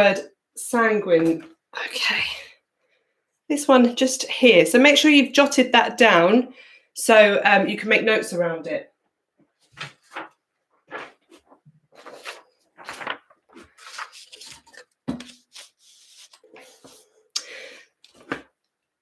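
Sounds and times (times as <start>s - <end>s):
paper rustling: 9.5s - 17.2s, 18.0s - 18.6s
paper rubbed against board: 10.0s - 17.1s.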